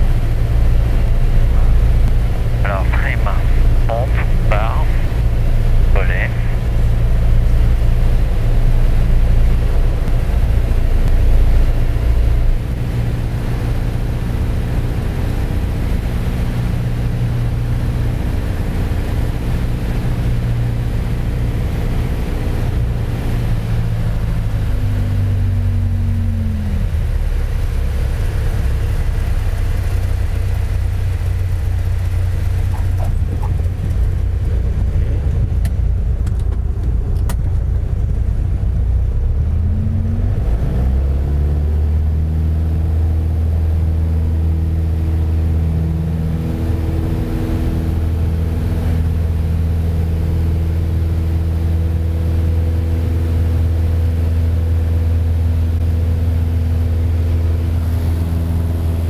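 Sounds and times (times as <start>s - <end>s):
aircraft piston engine: 0.0s - 24.9s, 27.0s - 38.7s.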